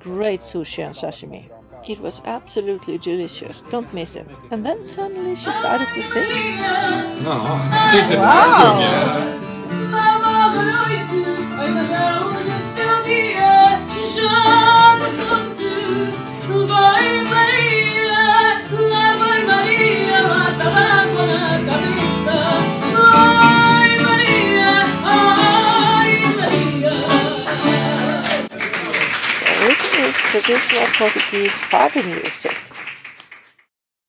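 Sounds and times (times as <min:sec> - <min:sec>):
instrumental accompaniment: 0:00.0 - 0:28.5
woman singing with vibrato: 0:04.9 - 0:09.3, 0:09.9 - 0:28.5.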